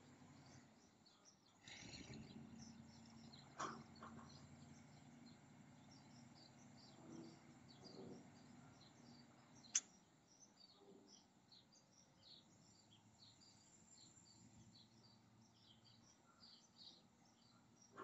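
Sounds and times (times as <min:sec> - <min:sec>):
low background hum: 0:00.0 - 0:18.0
small birds chirping: 0:00.0 - 0:18.0
sharp click: 0:09.7 - 0:09.9.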